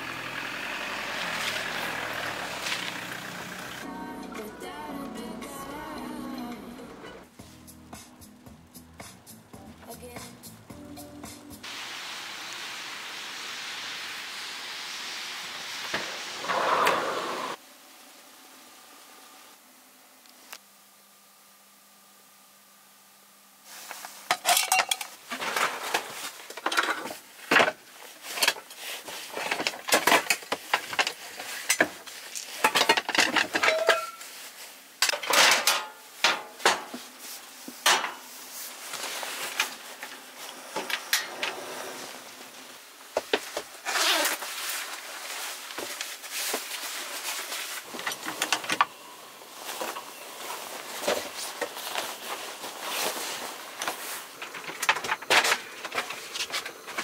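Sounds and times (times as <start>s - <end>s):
metal kitchenware clinking: 24.3s - 25.1s, 32.7s - 34.2s, 35.1s - 36.9s.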